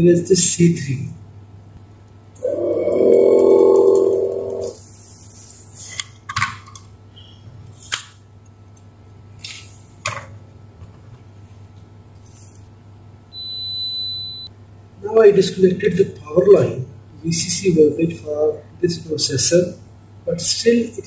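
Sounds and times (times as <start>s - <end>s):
low humming tone: 2.4s - 4.8s
multimeter continuity beep: 13.3s - 14.5s.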